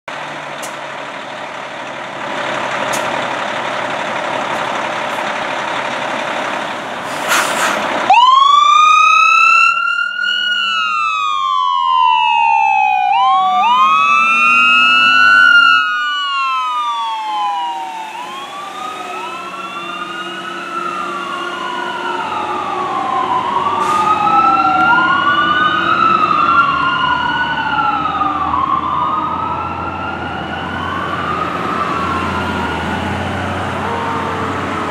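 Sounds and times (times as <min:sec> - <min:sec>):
fire engine running: 0:00.1 - 0:34.9
loud hiss of air: 0:07.0 - 0:07.9
siren wailing: 0:08.0 - 0:34.9.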